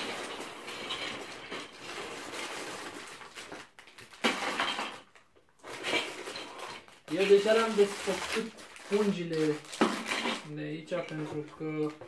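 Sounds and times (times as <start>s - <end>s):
plastic bags rustling: 0.0s - 12.0s
plastic bricks clattering: 0.0s - 12.0s.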